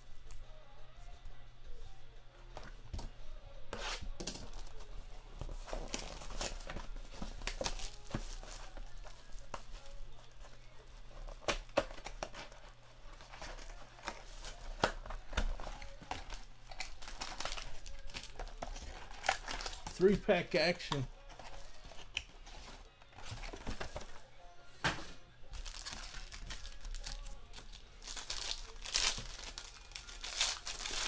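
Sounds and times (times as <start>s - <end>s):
plastic shrink wrap crackling: 15.5s - 20.0s, 25.6s - 31.0s.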